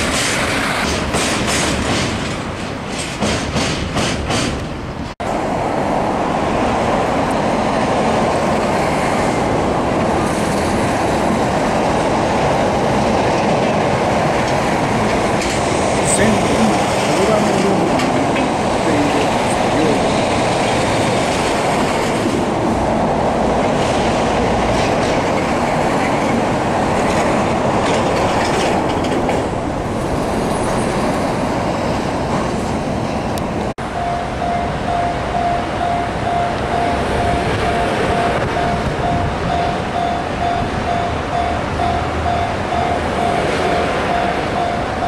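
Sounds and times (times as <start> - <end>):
train clattering on rails: 0.0 - 5.6, 6.4 - 45.0
diesel locomotive: 0.0 - 45.0
level-crossing bell ringing: 33.8 - 45.0.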